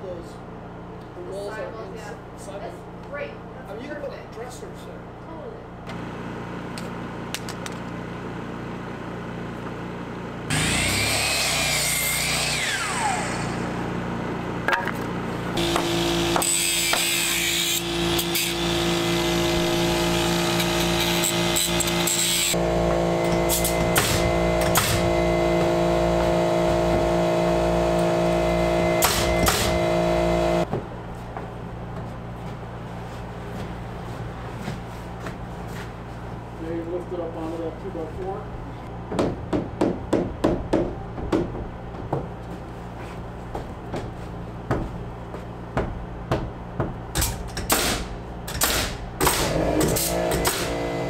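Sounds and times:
power tool noise: 10.4s - 30.7s, 47.6s - 51.0s
mitre saw cutting: 10.5s - 13.9s, 15.6s - 30.6s, 48.6s - 51.0s
saw blade winding down whine: 10.5s - 14.1s, 15.6s - 30.6s.

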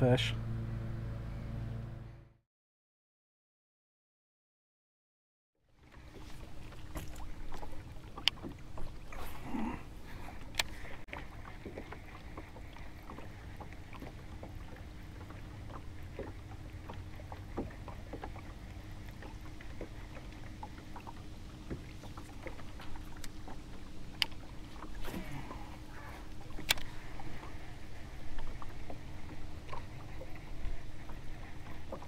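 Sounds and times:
boat engine rumble: 0.0s - 2.4s, 5.6s - 32.0s
light clicks and taps: 26.4s - 26.9s.

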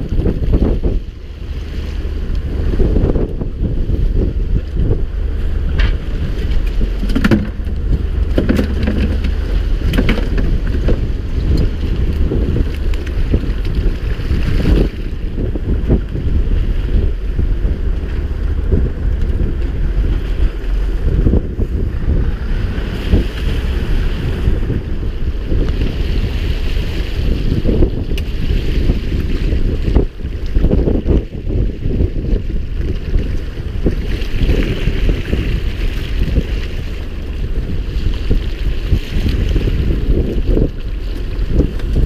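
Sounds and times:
waves washing against hull: 0.0s - 42.0s
wind buffeting microphone: 0.0s - 42.0s
knocks on boat: 5.7s - 11.0s.

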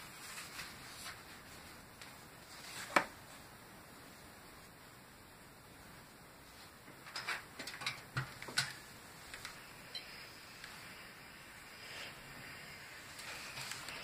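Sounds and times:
iron hissing: 8.8s - 14.0s.

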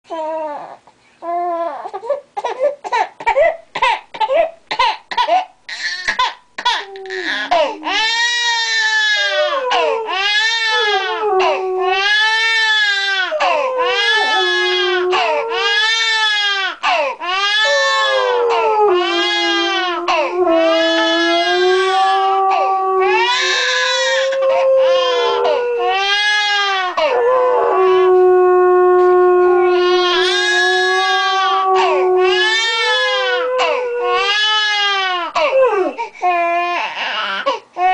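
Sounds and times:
baby crying: 0.1s - 28.2s, 29.4s - 37.9s
dog howling: 6.8s - 16.5s, 17.5s - 36.0s.

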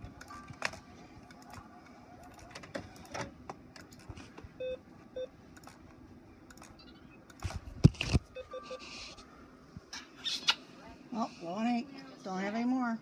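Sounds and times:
printer electronic beeps: 8.3s - 8.9s.

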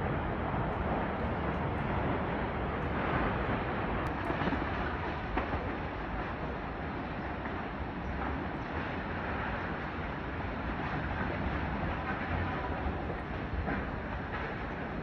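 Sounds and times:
strong wind rushing: 0.0s - 5.3s.

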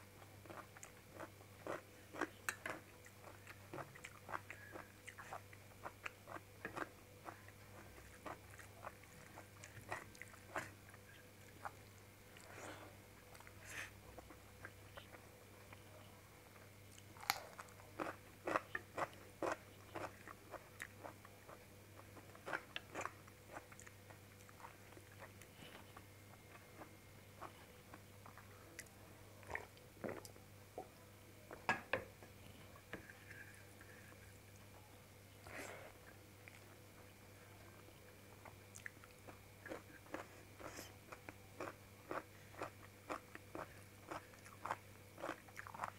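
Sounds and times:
steady low hum: 0.0s - 45.9s
person chewing food: 0.4s - 15.8s, 16.9s - 31.6s, 38.3s - 45.9s
chewing and mouth smacks: 41.1s - 45.9s.

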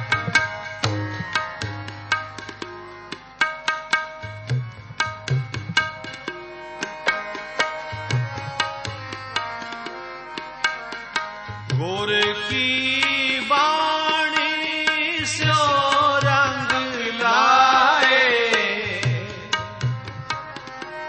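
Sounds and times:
tabla drum strokes: 0.0s - 9.2s.

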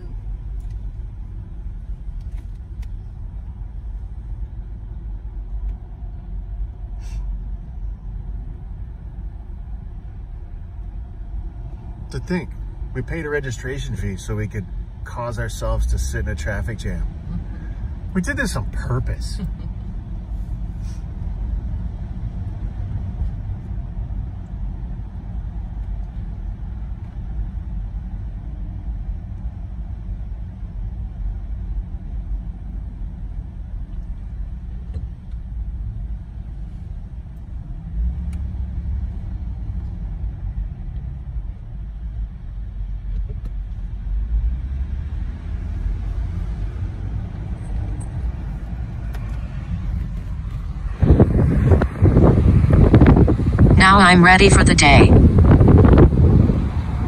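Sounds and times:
car engine and road rumble: 0.0s - 57.0s.

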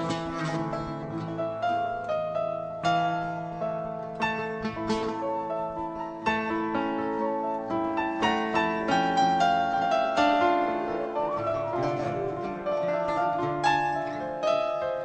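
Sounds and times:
plucked string melody: 0.0s - 15.0s.

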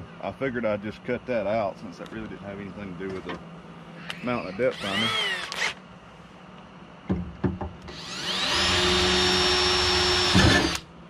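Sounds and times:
cordless drill whining: 4.0s - 5.8s, 7.9s - 10.8s.

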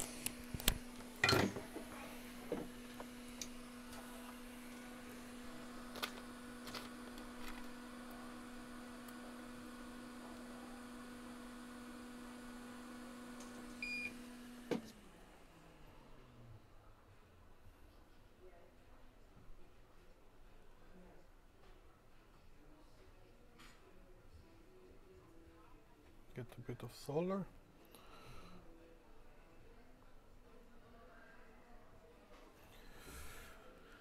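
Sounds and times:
electric motor hum: 0.0s - 15.2s.

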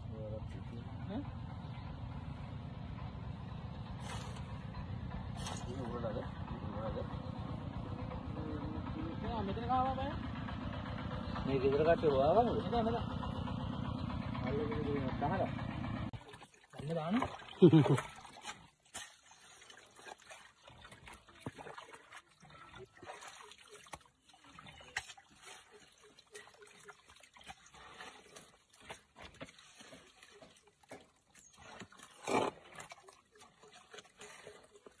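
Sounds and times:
hoe scraping wet mud: 3.9s - 6.1s, 15.3s - 35.0s
water trickling: 16.2s - 35.0s.

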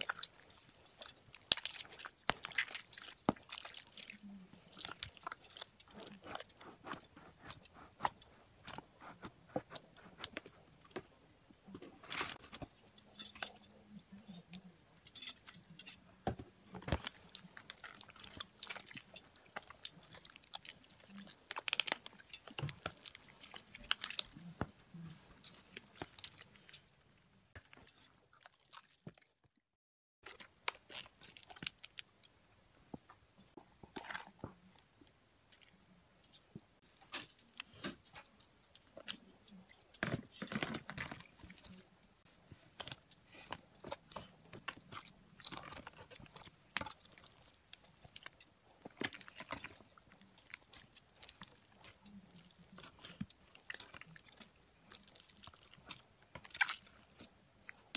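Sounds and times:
slime squelching: 0.0s - 11.0s, 16.7s - 29.2s, 37.1s - 57.9s.

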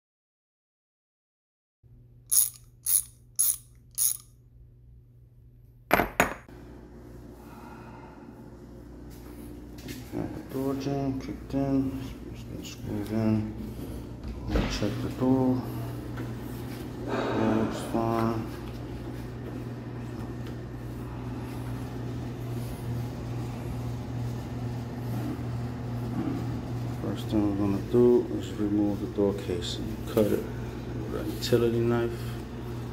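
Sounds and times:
steady low hum: 1.9s - 32.9s
sharp mechanical clicks: 2.3s - 4.3s.

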